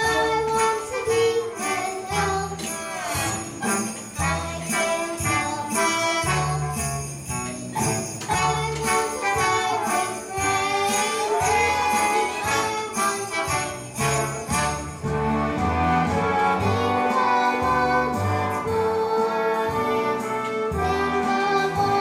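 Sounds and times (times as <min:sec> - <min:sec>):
jingle bells shaking: 0:00.0 - 0:22.0
upbeat christmas song: 0:00.0 - 0:22.0.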